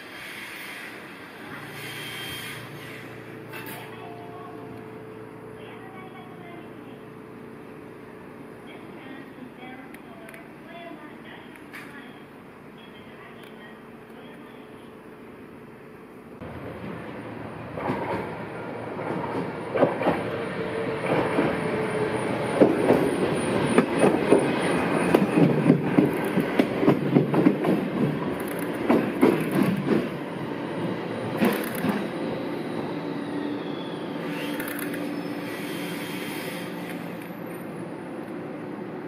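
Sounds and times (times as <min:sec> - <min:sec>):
tram wheels clattering over rails: 0:16.4 - 0:32.6.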